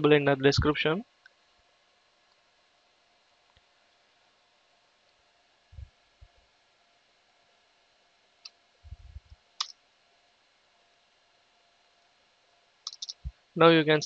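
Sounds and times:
soft low thumps: 0:08.8 - 0:09.4
computer keys clicking: 0:12.8 - 0:13.3.

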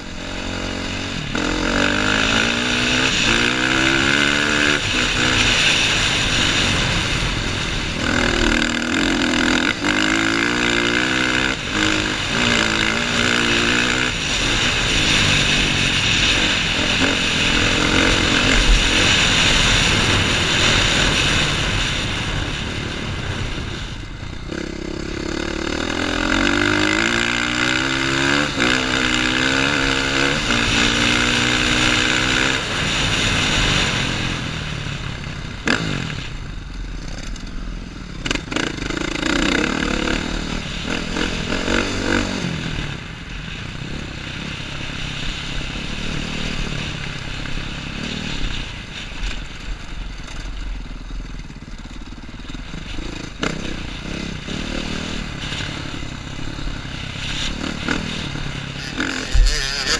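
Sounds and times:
dirt bike engine accelerating: 0:00.0 - 0:59.9.

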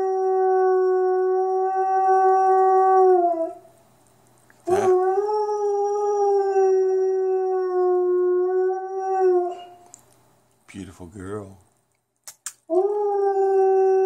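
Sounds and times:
wolfdog howling: 0:00.0 - 0:03.7, 0:04.7 - 0:09.8, 0:12.7 - 0:14.0.

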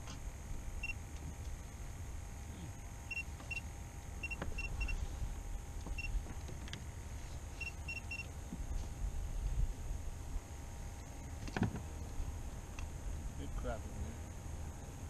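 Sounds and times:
low steady rumble: 0:00.0 - 0:15.0
short high electronic beeps: 0:03.1 - 0:03.6.

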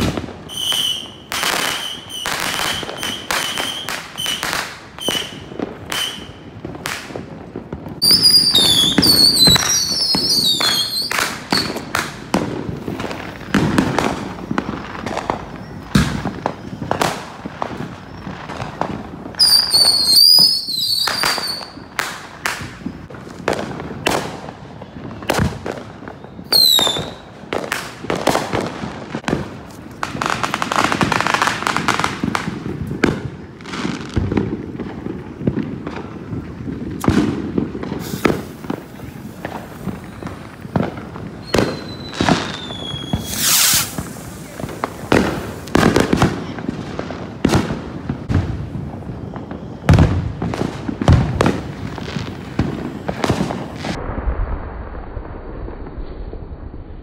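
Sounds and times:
firecracker bangs and pops: 0:00.0 - 0:57.0
fireworks crackling: 0:00.0 - 0:57.0
falling whistle: 0:41.4 - 0:43.9
warbling rocket whistles: 0:41.4 - 0:44.6.

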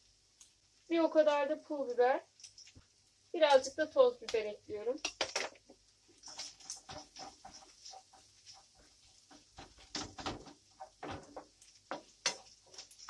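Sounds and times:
wooden spoon scraping a pan: 0:05.4 - 0:13.0.

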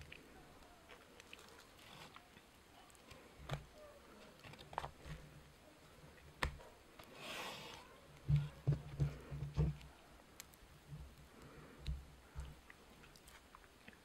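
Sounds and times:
hands peeling cabbage leaf: 0:00.0 - 0:14.0.

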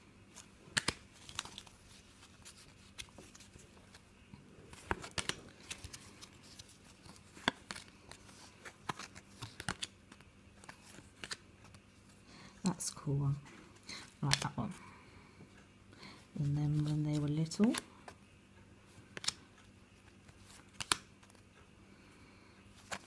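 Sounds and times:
trading cards being leafed through: 0:00.3 - 0:13.2, 0:13.9 - 0:14.9, 0:16.0 - 0:18.2, 0:18.9 - 0:21.5, 0:22.8 - 0:23.0
card snaps: 0:00.7 - 0:01.5, 0:20.7 - 0:21.1.

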